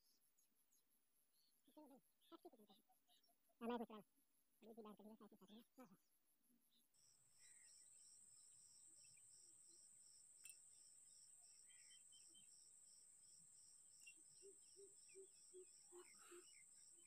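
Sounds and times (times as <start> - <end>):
crickets chirping: 7.0 - 17.0.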